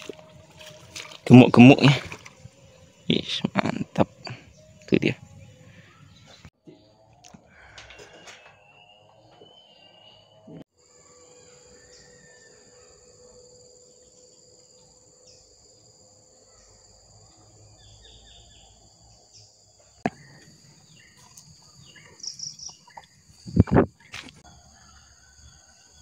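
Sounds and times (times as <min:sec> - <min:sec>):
bird chirps: 0:08.0 - 0:10.6, 0:17.7 - 0:24.2
insect chirring: 0:10.8 - 0:24.2.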